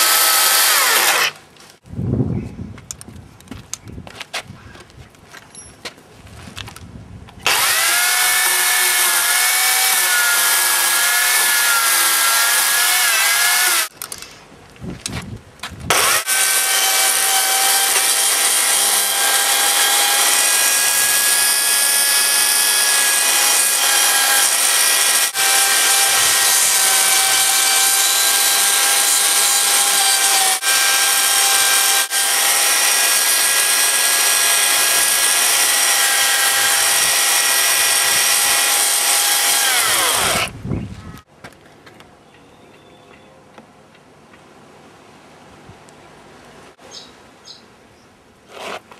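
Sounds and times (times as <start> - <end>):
electric chainsaw cutting log: 0.0 - 1.4, 7.4 - 13.9, 15.9 - 40.6.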